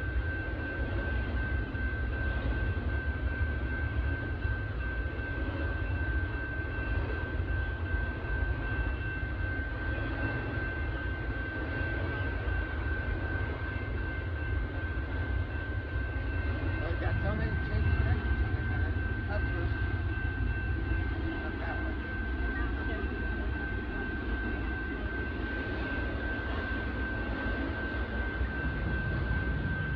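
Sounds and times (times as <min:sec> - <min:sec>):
freight train rumbling on rails: 0:00.0 - 0:29.9
high whine: 0:00.0 - 0:29.9.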